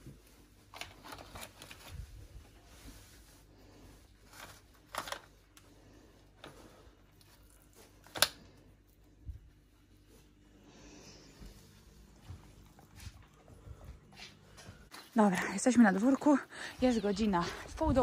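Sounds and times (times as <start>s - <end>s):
foil and spoon rustling: 0.0s - 8.2s.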